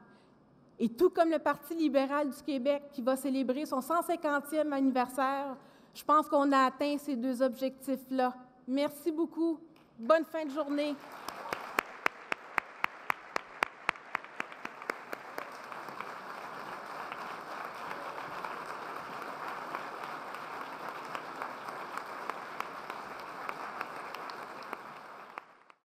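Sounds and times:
audience applauding: 10.8 - 25.8.

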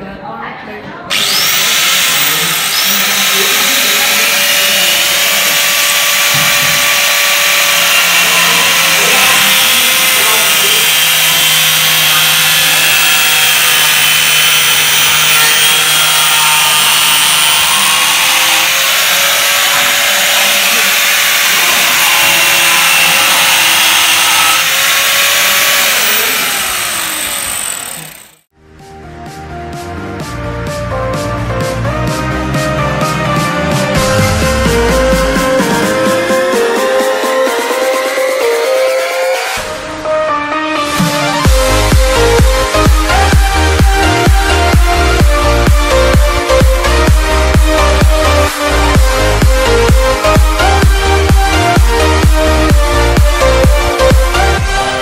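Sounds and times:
angle grinder cutting pipe: 1.1 - 28.5, 40.8 - 55.0.

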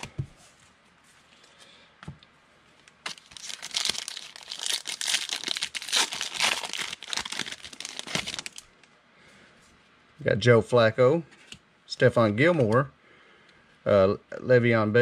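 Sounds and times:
foil wrapper crinkling: 3.0 - 8.7.

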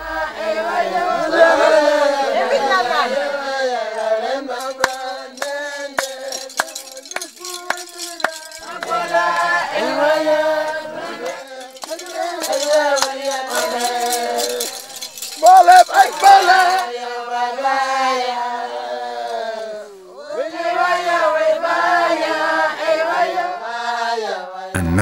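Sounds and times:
men chanting and singing: 0.0 - 25.0
sharp percussive clicks: 4.6 - 9.4.

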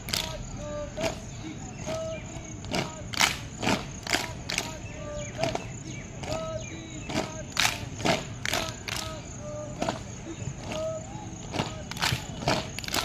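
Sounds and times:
claps or stamps in unison: 0.0 - 0.4, 1.8 - 4.8, 5.4 - 9.2, 11.5 - 13.0.

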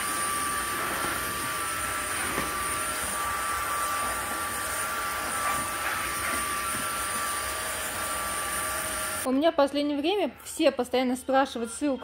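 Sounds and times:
vacuum cleaner whining: 0.0 - 9.3.

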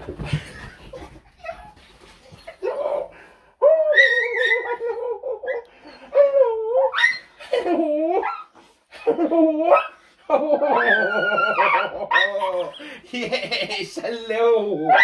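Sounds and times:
dog whining: 1.4 - 7.3.

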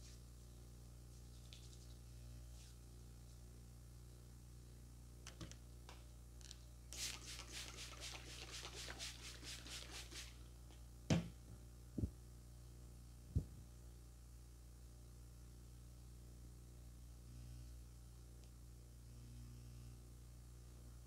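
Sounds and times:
hands rubbing rhythmically: 7.0 - 10.4.

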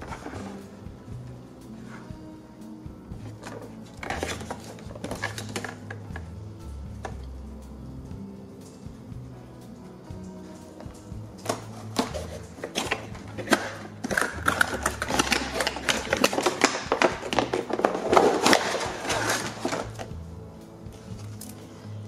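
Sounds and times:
soft background music: 0.0 - 22.0
plastic packaging crinkling: 11.6 - 20.1.

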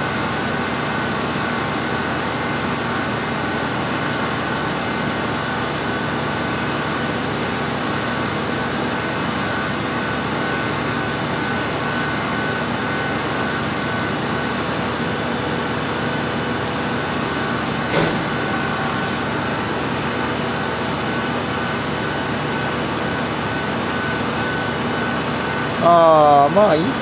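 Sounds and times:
machinery and ventilation hum: 0.0 - 27.0.

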